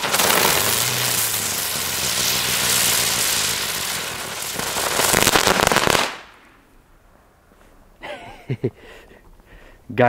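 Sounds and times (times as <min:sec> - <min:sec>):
spinning firework hissing: 0:00.0 - 0:06.4
firework crackling pops: 0:00.0 - 0:06.6.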